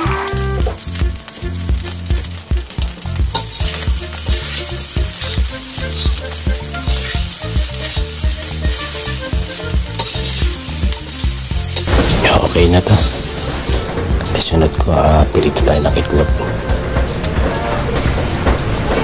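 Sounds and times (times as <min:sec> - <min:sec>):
rice sizzling in a wok: 0:00.0 - 0:14.4
background music: 0:00.0 - 0:19.0
metal spoon scraping wok: 0:10.0 - 0:10.8.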